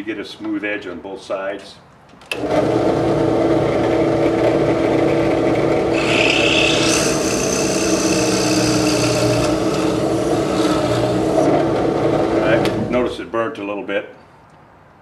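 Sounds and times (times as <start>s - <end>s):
drill press motor hum: 2.4s - 12.9s
high screech of cutter: 5.9s - 11.5s
cutter scraping wood: 5.9s - 13.0s.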